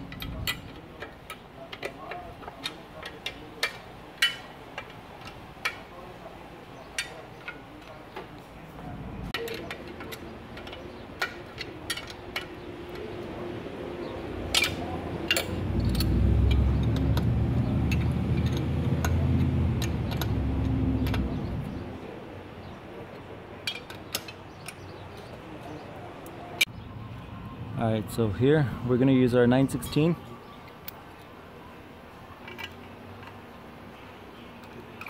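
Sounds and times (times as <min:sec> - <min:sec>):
metal wrenches clinking on bolt: 0:00.0 - 0:05.9, 0:09.4 - 0:13.1, 0:14.5 - 0:21.4, 0:23.6 - 0:25.3, 0:32.4 - 0:33.5.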